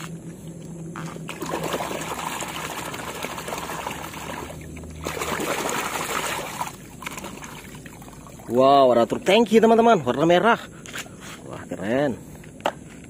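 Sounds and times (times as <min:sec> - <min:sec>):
muddy water splashing: 0:01.3 - 0:09.2.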